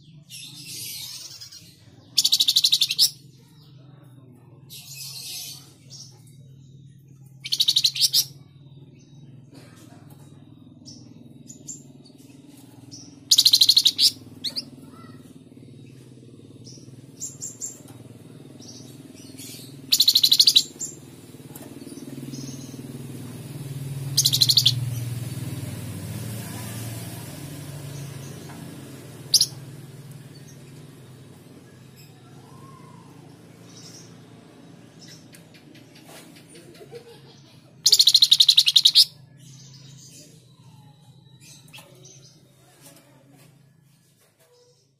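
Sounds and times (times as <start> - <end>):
high bird chirps: 0.4 - 3.5, 4.8 - 9.4, 10.8 - 36.2, 37.8 - 42.6
songbird trilling: 0.7 - 3.2, 7.4 - 8.4, 12.9 - 15.2, 18.6 - 21.0, 22.2 - 25.2, 29.2 - 30.9, 37.8 - 42.4.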